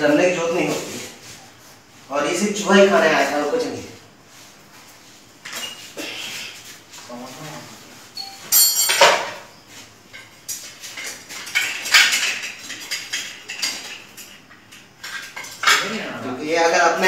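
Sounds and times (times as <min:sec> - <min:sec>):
metal dishes clinking and clattering: 0:08.2 - 0:09.5, 0:10.1 - 0:16.0.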